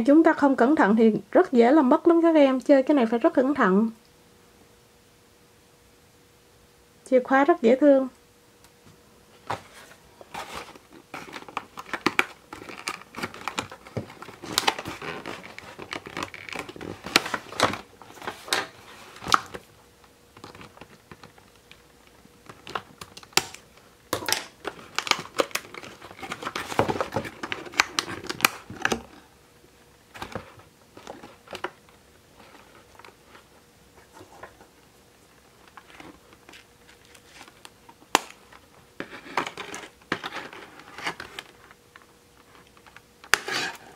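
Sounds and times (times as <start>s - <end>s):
packaging crinkling and rustling: 9.4s - 19.7s, 20.3s - 29.3s, 30.1s - 43.9s.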